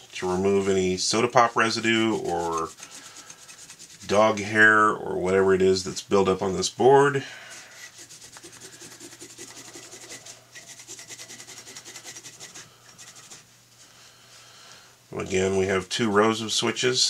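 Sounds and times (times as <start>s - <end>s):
paper towel rubbing circuit board: 0.0s - 4.4s, 7.5s - 13.5s.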